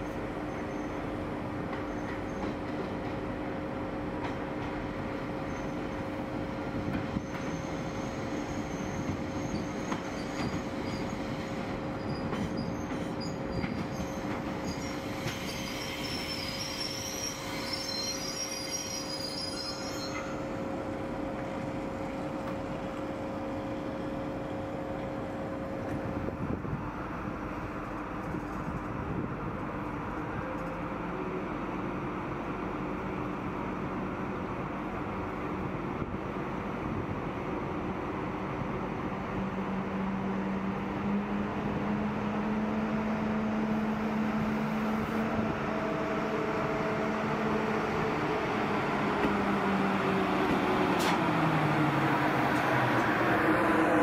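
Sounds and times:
train rumbling and humming: 0:00.0 - 0:54.0
wheels squealing on rails: 0:00.1 - 0:01.2, 0:05.3 - 0:06.2, 0:06.8 - 0:20.8.

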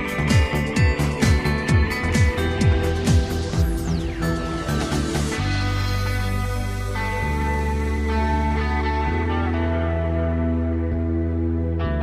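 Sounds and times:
music with held notes: 0:00.0 - 0:12.0.

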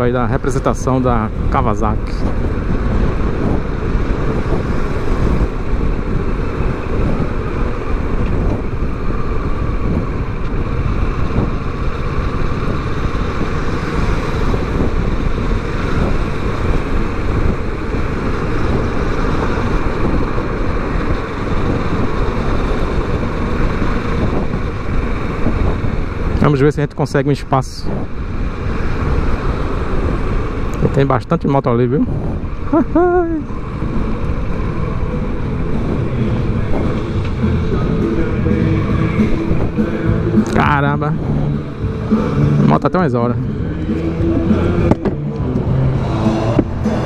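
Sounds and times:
road noise: 0:00.0 - 0:47.0
wind rushing over microphone: 0:00.0 - 0:47.0
motorcycle engine running: 0:32.6 - 0:47.0.

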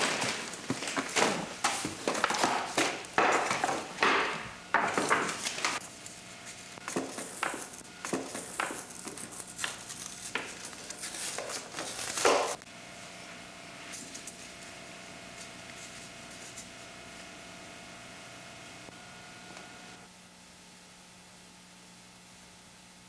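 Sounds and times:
paper rustling: 0:00.0 - 0:04.2, 0:04.9 - 0:12.6.

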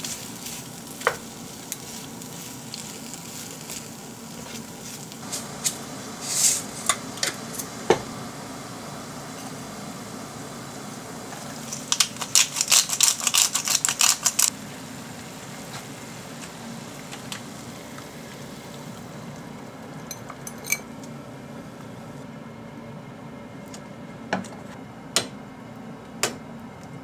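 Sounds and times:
dried noodles crackling: 0:00.0 - 0:07.8, 0:10.4 - 0:19.6
kitchen hum: 0:00.0 - 0:27.0.

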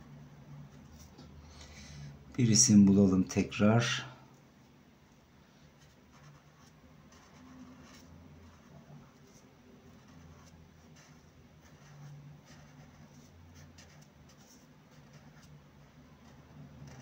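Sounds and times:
low steady hum: 0:00.0 - 0:17.0
marker scratching on paper: 0:05.8 - 0:17.0.

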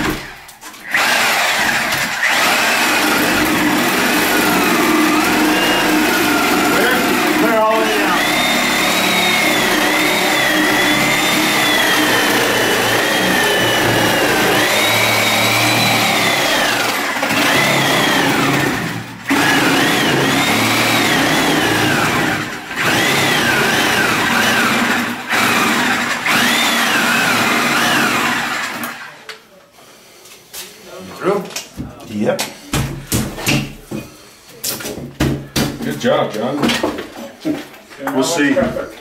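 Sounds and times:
reciprocating saw cutting: 0:00.8 - 0:29.0.

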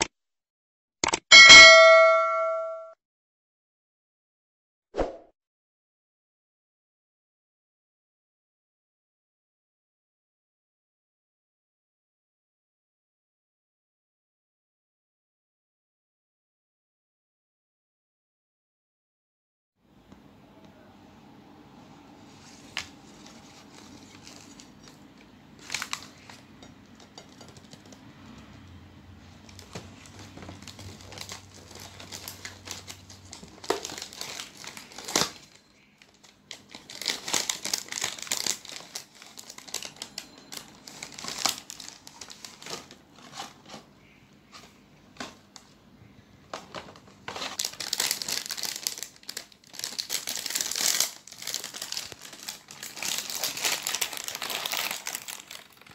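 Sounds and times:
foil wrapper crinkling: 0:22.5 - 0:28.0, 0:29.4 - 0:43.9, 0:46.7 - 0:55.9.

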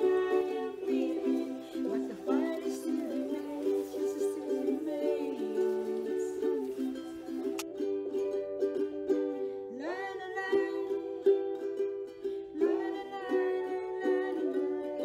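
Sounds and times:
acoustic song with ukulele: 0:00.0 - 0:15.0.

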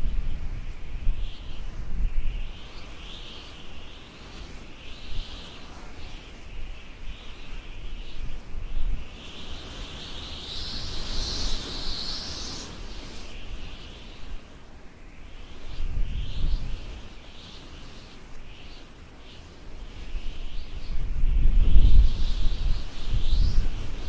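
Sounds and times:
wind gusting on microphone: 0:00.0 - 0:24.0
high chirping: 0:09.4 - 0:14.1.

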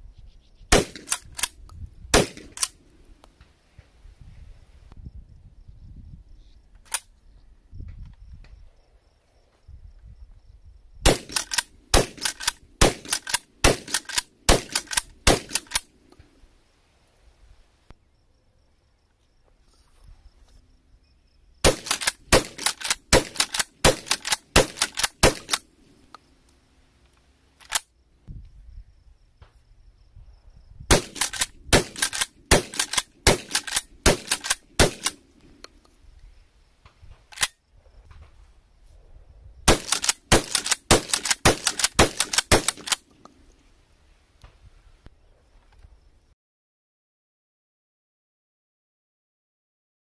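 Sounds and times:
shotgun shots: 0:00.7 - 0:01.5, 0:02.1 - 0:02.8, 0:11.0 - 0:15.8, 0:21.6 - 0:25.7, 0:30.9 - 0:35.2, 0:39.7 - 0:43.0.

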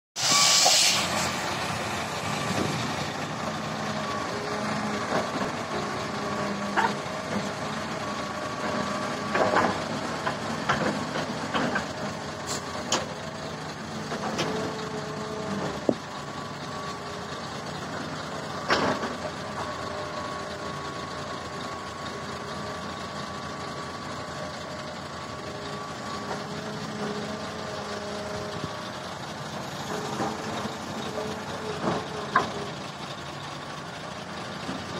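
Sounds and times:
excavator engine droning: 0:00.2 - 0:34.9.

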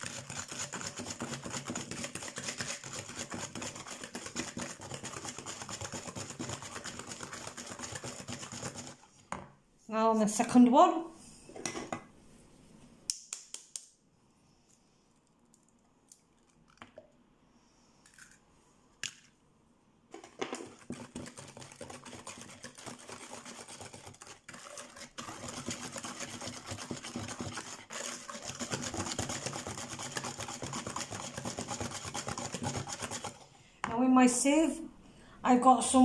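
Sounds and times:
whisk beating batter in bowl: 0:00.0 - 0:09.1, 0:20.2 - 0:33.4.

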